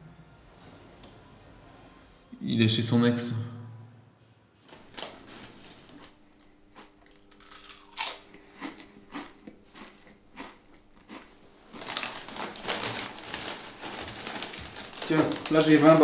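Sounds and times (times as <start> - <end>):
plastic chip bag crackling: 4.7 - 6.2, 6.8 - 16.0
chips being chewed: 5.6 - 15.9.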